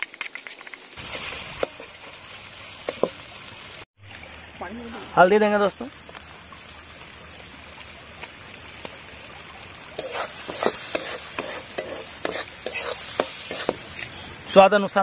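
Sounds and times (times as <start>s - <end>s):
spices sizzling in a pan: 0.2s - 15.0s
metal spatula scraping a pan: 10.0s - 14.4s.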